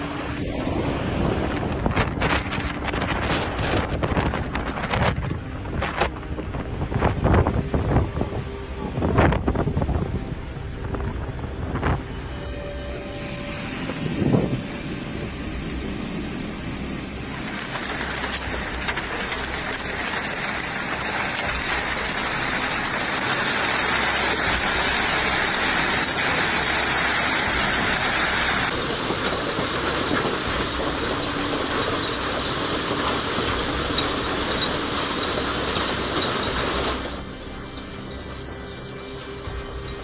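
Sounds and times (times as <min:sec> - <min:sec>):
strong wind: 0:00.0 - 0:37.7
heavy rain downpour: 0:00.0 - 0:40.0
rain pelting a swimming pool: 0:12.9 - 0:38.2.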